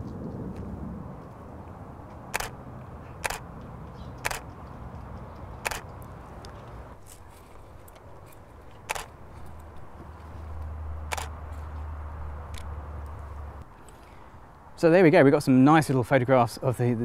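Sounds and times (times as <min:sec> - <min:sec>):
low outdoor background: 0:00.0 - 0:17.0
camera shutter clicks: 0:02.3 - 0:02.6, 0:03.2 - 0:03.4, 0:04.2 - 0:04.5, 0:05.6 - 0:05.9, 0:08.8 - 0:09.1, 0:11.1 - 0:11.3.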